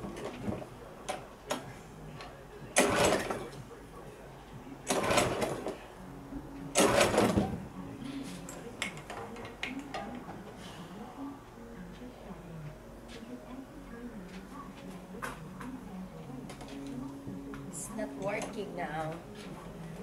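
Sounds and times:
engine turning over: 2.8s - 3.4s, 4.9s - 5.8s, 6.8s - 7.5s
lawn mower starter cord pulls: 2.8s - 3.4s, 4.9s - 5.7s, 6.8s - 7.4s.

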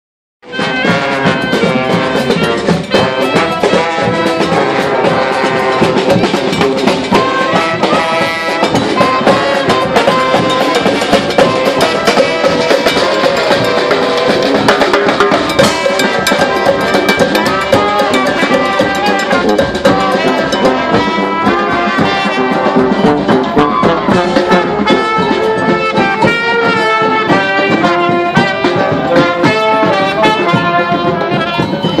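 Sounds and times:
marching brass band playing: 0.4s - 32.0s
bass drum beat: 0.5s - 32.0s.

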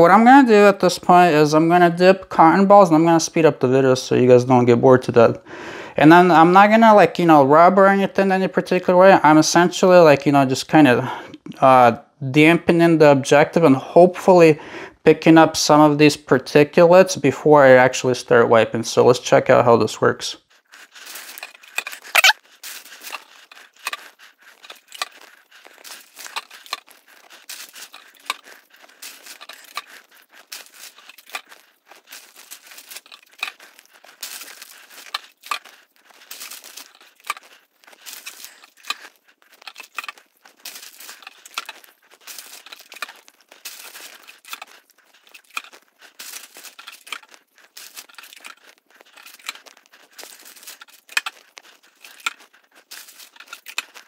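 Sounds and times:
rustling crinkling and tearing: 20.4s - 54.0s.

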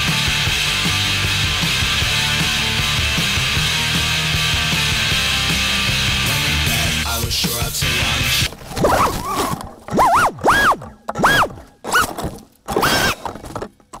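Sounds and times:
rock music: 0.0s - 8.5s
drone motors whining: 8.8s - 13.4s.

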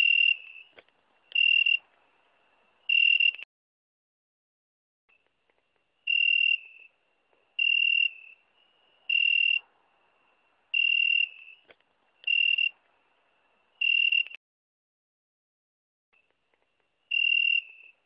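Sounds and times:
insect chirping high tone: 0.0s - 1.8s, 2.9s - 3.4s, 6.0s - 7.0s, 7.6s - 12.8s, 13.7s - 14.4s, 17.1s - 18.0s.

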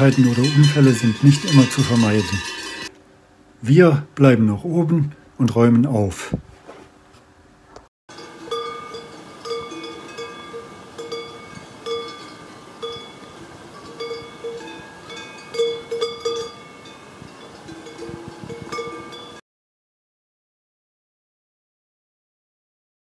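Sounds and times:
cow bell clanking: 0.0s - 2.9s, 8.1s - 19.4s.

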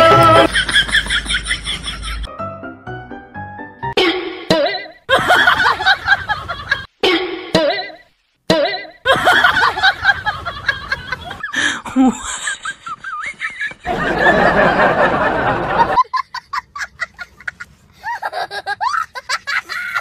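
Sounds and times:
people laughing and giggling: 0.1s - 2.3s, 5.1s - 6.9s, 9.1s - 20.0s.

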